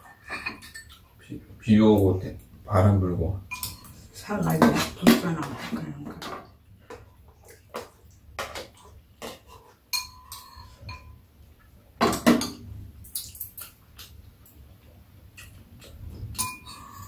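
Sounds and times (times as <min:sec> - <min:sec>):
utensils clattering: 0:00.0 - 0:01.0, 0:03.5 - 0:06.4, 0:15.4 - 0:17.0
utensils clicking against bowls: 0:03.5 - 0:05.6, 0:13.0 - 0:14.6, 0:15.3 - 0:17.0.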